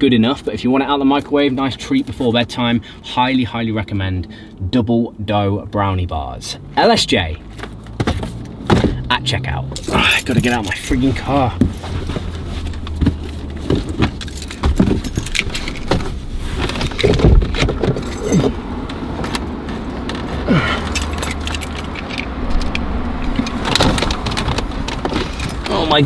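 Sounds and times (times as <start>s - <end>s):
clothing rustling against seats: 9.8s - 26.0s.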